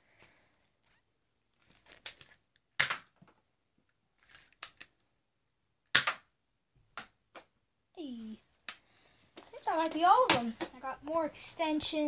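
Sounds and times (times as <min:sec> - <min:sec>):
loud sharp snaps: 0:02.8 - 0:03.1, 0:05.9 - 0:06.3.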